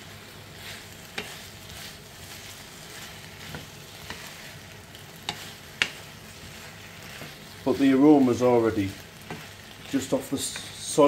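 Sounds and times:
vegetables sizzling in a wok: 0.0 - 11.0
wooden spoon knocking on pan: 3.4 - 4.3, 5.2 - 6.2, 9.2 - 9.6.

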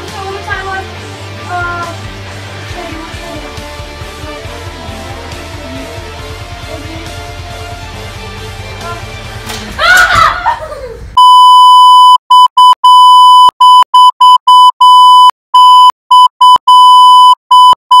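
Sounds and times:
electronic beeps: 11.2 - 18.0.

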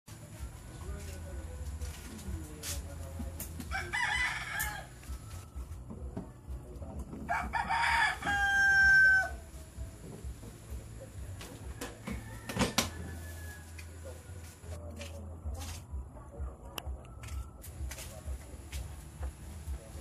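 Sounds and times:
rooster crowing: 3.7 - 5.7, 7.3 - 9.5, 11.7 - 13.9.

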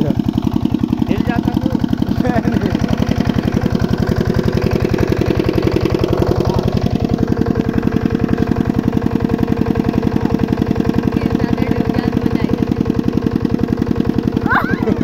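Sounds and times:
small engine running: 0.0 - 15.0.

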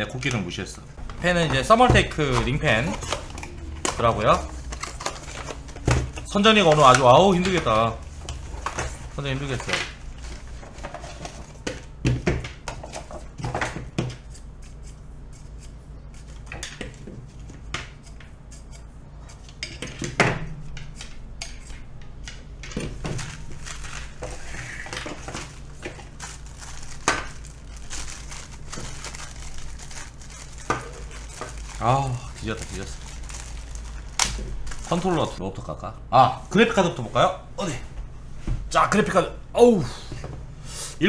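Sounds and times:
steady low hum: 0.0 - 41.0
packaging rustling: 1.1 - 11.6, 22.9 - 35.4.

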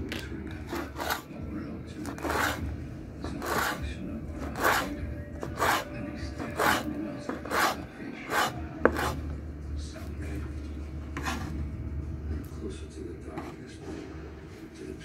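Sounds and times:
knife slicing on wooden board: 2.1 - 2.6, 3.4 - 3.8, 4.5 - 4.9, 5.5 - 9.2.

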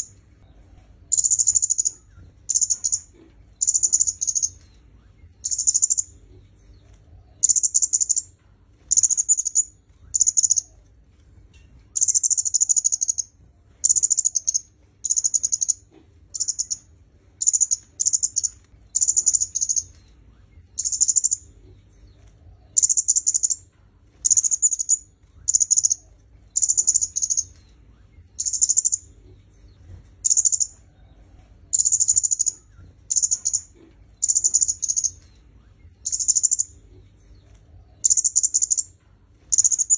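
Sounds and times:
bird ticking chatter: 0.0 - 0.2, 1.1 - 4.7, 5.4 - 6.2, 7.4 - 8.3, 8.9 - 10.7, 12.0 - 20.0, 20.8 - 21.5, 22.8 - 23.6, 24.2 - 26.0, 26.6 - 27.6, 28.3 - 29.1, 30.2 - 30.8, 31.7 - 35.3, 36.0 - 36.8, 38.0 - 38.9, 39.5 - 39.9.

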